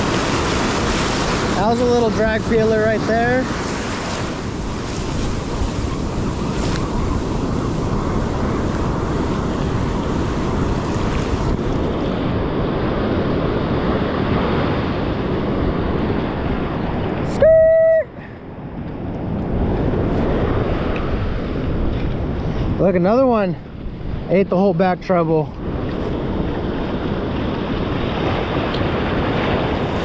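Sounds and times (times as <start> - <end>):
ocean surf: 0.0 - 30.0
wind buffeting microphone: 0.0 - 30.0.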